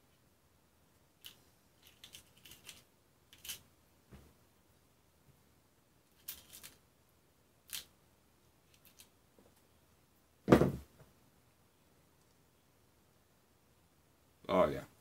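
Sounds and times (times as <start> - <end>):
small hardware clicks and rattles: 1.2 - 3.6
object knocking on workbench: 10.5 - 10.9.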